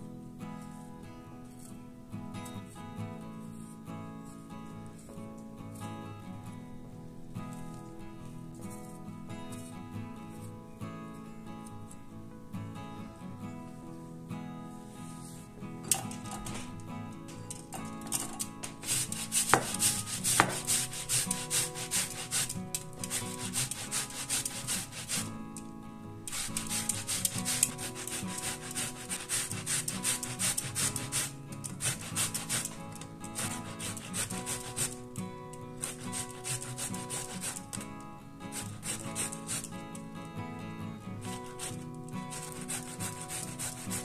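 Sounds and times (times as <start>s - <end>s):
tomatoes scraping on grater: 17.4s - 40.1s, 41.2s - 44.0s.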